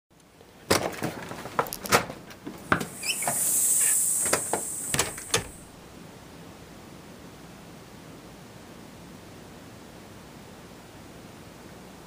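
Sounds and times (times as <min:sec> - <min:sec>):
door scraping open: 0:02.8 - 0:05.6
door squeaks: 0:02.8 - 0:05.6.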